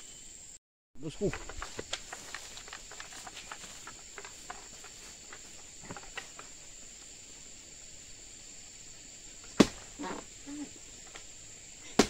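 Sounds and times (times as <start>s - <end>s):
high insect drone: 0.0s - 12.0s
rustles and steps in undergrowth: 1.0s - 7.6s
sharp chop: 9.6s - 9.8s.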